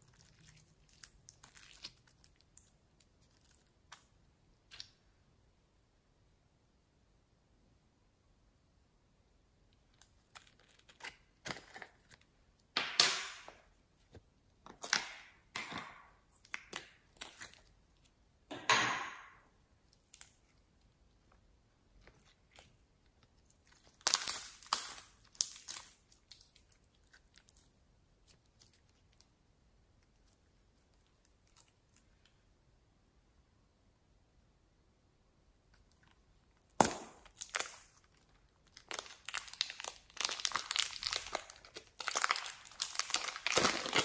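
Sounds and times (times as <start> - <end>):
sticky slime squelching: 0.0 - 5.0, 9.7 - 18.3, 19.6 - 32.3, 35.7 - 44.0.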